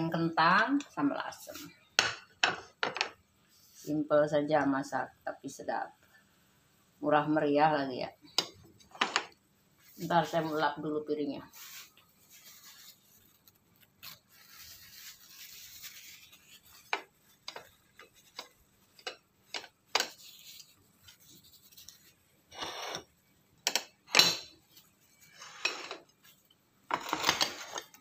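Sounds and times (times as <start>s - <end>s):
cloth rubbing plate: 11.5s - 18.9s
plate scraping: 22.5s - 23.1s, 25.2s - 26.1s, 26.9s - 28.0s.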